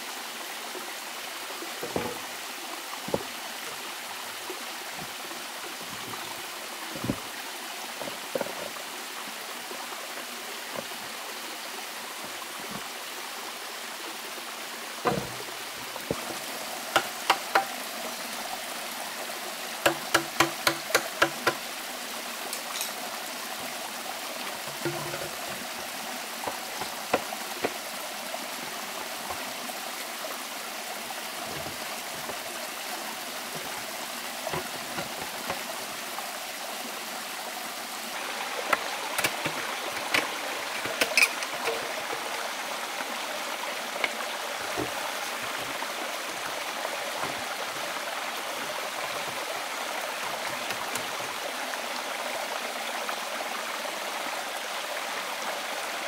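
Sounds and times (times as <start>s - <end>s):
stream running: 0.0s - 56.0s
machete chopping bamboo: 17.0s - 17.8s, 19.9s - 21.6s.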